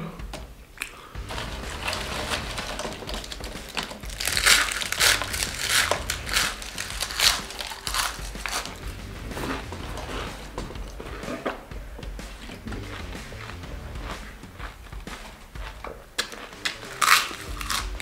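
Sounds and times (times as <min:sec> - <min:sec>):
chips being crunched and chewed: 0:00.8 - 0:08.9, 0:15.1 - 0:18.0
hands rustling through chips: 0:00.8 - 0:11.6, 0:14.0 - 0:18.0.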